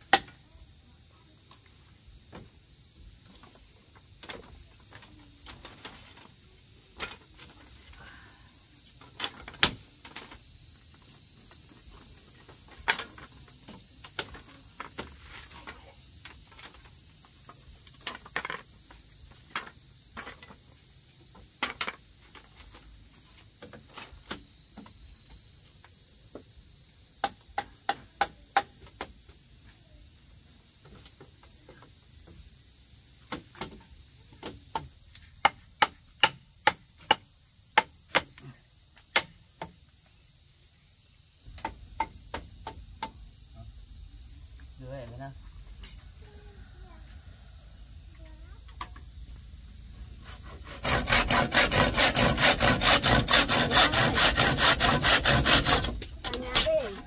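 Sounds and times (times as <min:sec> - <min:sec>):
insects droning: 0:00.0 - 0:57.0
sharp knocks and taps: 0:41.5 - 0:43.2.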